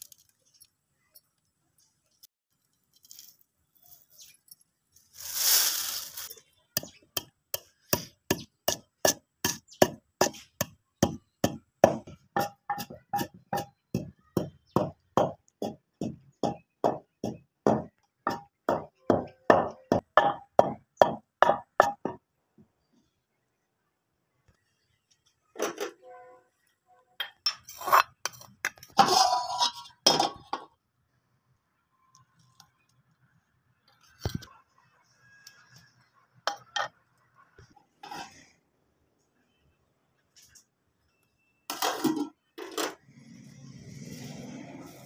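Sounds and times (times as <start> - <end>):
pestle pounding seeds in mortar: 6.8 - 22.2.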